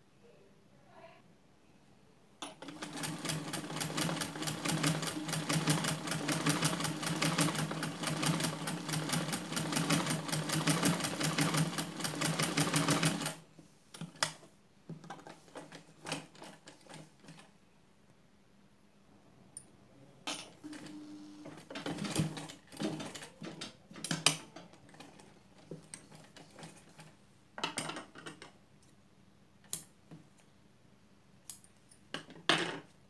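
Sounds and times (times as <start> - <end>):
sewing machine stitching: 2.4 - 13.4, 20.6 - 23.6.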